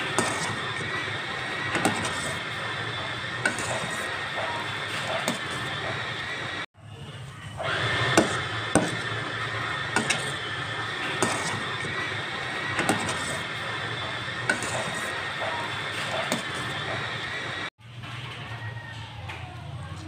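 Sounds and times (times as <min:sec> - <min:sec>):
metal spoon stirring: 0:08.0 - 0:17.1.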